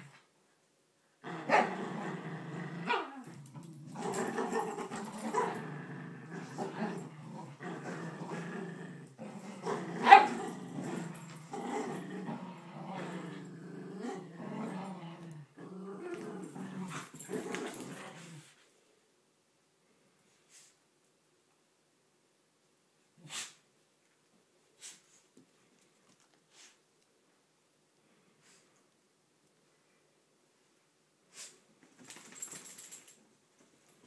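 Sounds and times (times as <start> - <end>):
dogs growling: 1.2 - 18.5.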